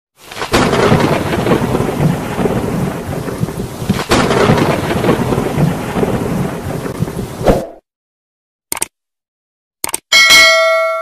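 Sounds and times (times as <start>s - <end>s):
heavy rain rushing: 0.2s - 7.4s
sharp thunder crack: 0.3s - 7.8s.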